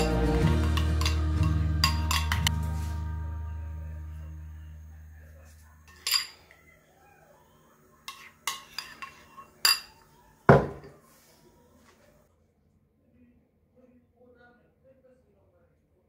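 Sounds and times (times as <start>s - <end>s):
spoon knocking bowl: 0.0s - 2.6s
teaspoon clinking against ceramic bowl: 0.0s - 2.6s, 5.9s - 6.6s, 8.1s - 10.0s.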